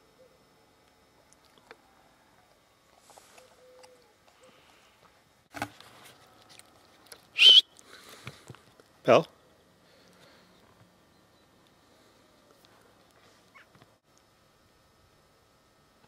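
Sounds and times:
high-pitched whistled note: 7.4 - 7.7.

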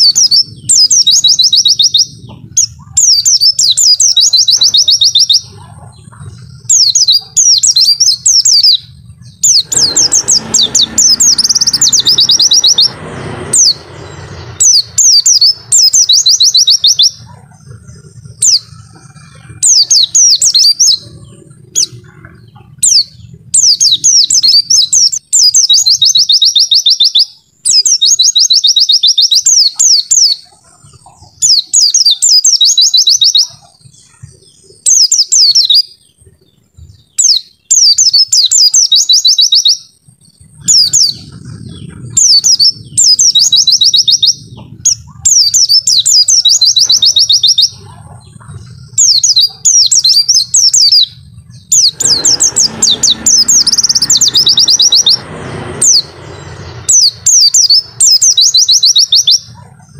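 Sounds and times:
low background rumble: 0.0 - 26.2, 39.8 - 59.9
bird twittering: 0.0 - 59.9.

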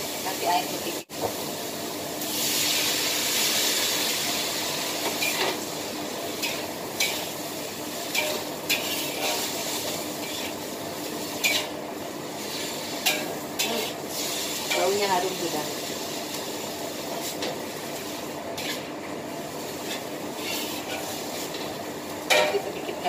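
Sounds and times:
stir-fry sizzling in wok: 0.0 - 23.0
spatula scraping wok: 2.3 - 11.8, 12.4 - 23.0.

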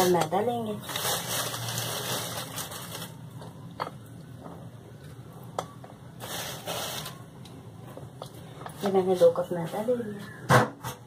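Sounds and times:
flour hissing through sieve: 6.2 - 7.2.

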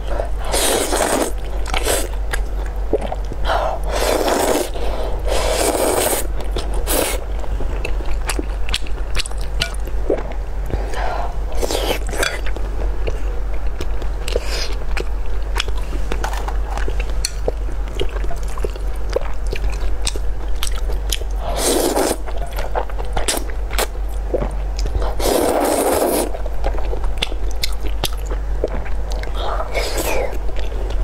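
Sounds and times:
steady low hum: 0.0 - 31.0
loud noodle slurps: 0.5 - 2.1, 3.9 - 6.3, 21.5 - 22.2, 25.2 - 26.3.

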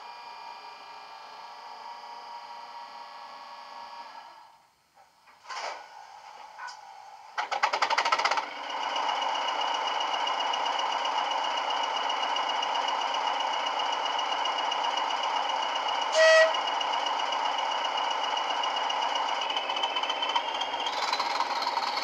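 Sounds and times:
model diesel engine idling: 6.4 - 22.0
short horn blast: 16.1 - 16.6.

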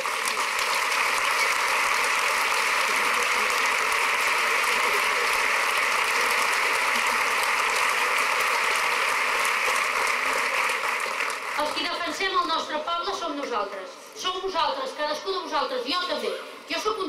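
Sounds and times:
crowd applauding: 0.0 - 12.4.

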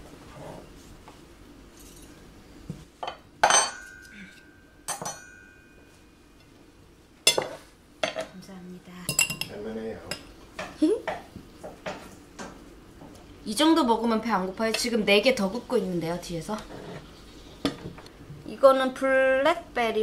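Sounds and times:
cutlery clinking on plates: 3.0 - 5.9, 7.3 - 8.3, 9.1 - 12.1.

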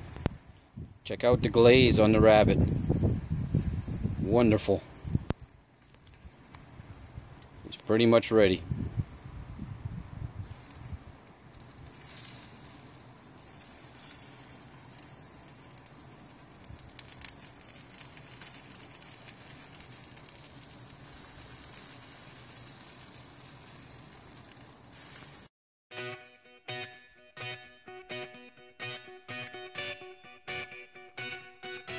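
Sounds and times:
fat hissing on hot coals: 0.0 - 25.5.

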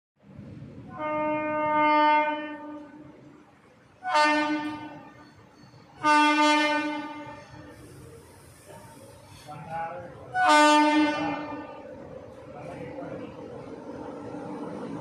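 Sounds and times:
locomotive air horn blasts: 0.9 - 3.0, 4.0 - 5.2, 6.0 - 7.8, 10.3 - 11.7.

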